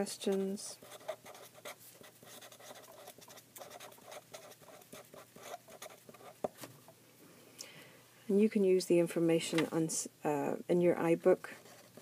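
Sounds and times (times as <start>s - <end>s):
felt-tip pen scratching on paper: 0.0s - 6.5s.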